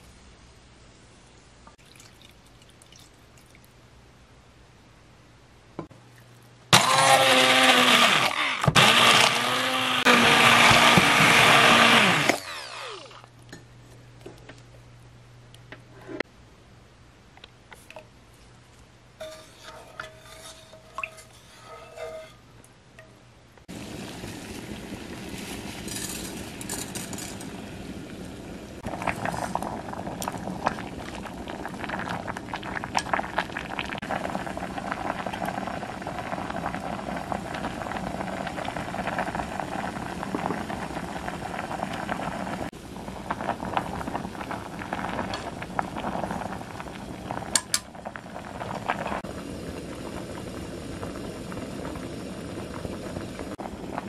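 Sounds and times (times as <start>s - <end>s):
water boiling and bubbling: 1.7s - 4.0s, 5.8s - 13.7s, 19.2s - 23.0s, 23.6s - 54.0s
chopsticks tapping and scraping pot: 19.2s - 22.4s
wooden spoon clinking against pot: 19.2s - 22.4s.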